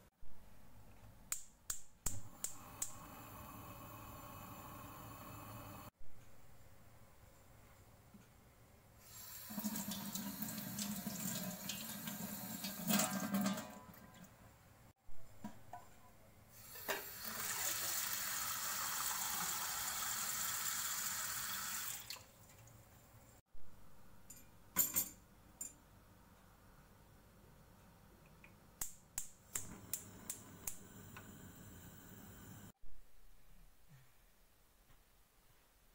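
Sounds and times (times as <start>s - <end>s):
tap water running into sink: 9.4s - 13.5s.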